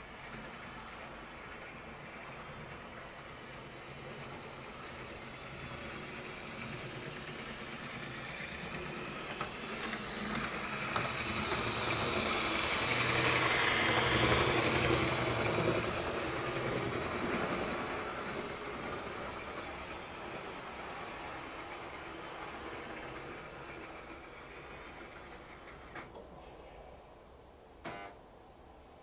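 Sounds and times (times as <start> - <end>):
model train running on track: 0.0 - 26.1.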